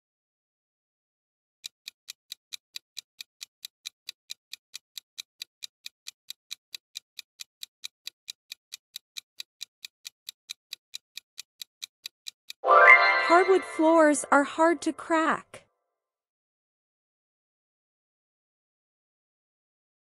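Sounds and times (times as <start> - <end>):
clock ticking: 1.6 - 12.6, 13.2 - 15.2.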